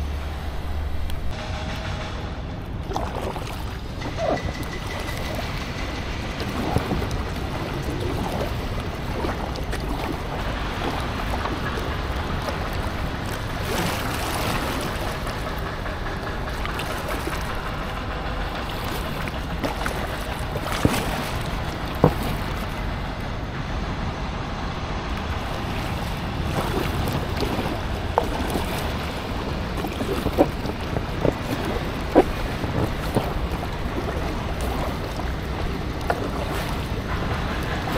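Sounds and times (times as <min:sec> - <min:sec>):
wind buffeting microphone: 0:00.0 - 0:37.9
water sloshing around raft: 0:02.7 - 0:23.5, 0:25.1 - 0:37.9.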